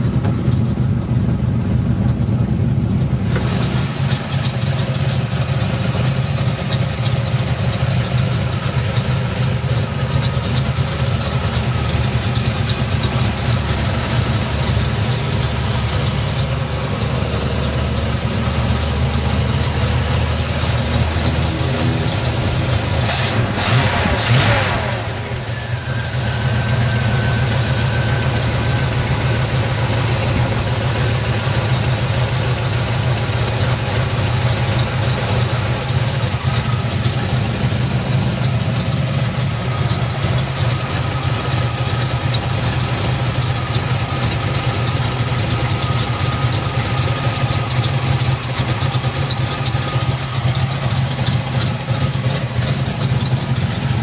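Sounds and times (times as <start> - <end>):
car engine idling and revving: 0.0 - 54.0.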